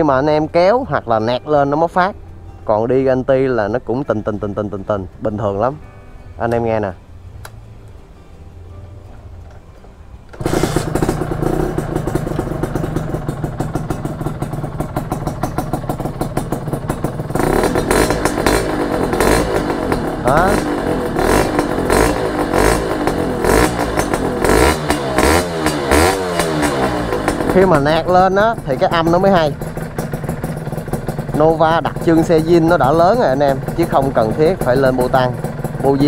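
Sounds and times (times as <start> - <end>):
two-stroke motorcycle engine revving: 10.3 - 36.0.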